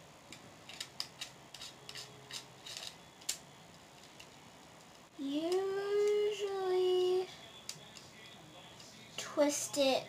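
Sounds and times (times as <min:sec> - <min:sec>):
plastic clicks and scrapes: 0:00.7 - 0:03.4.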